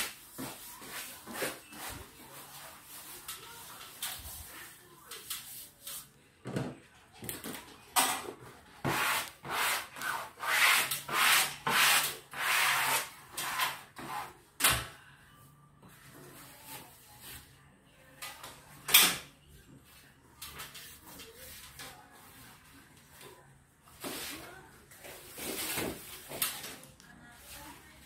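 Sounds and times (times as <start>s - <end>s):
wallpaper scraping strokes: 0.0s - 6.1s, 8.8s - 14.4s.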